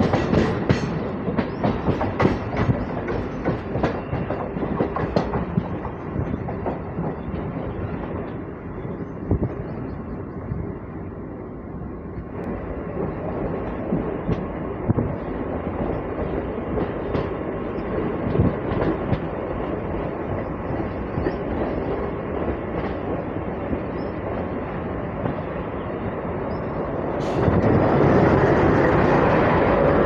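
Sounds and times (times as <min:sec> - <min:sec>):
train wheels rumbling on rails: 0:00.0 - 0:30.0.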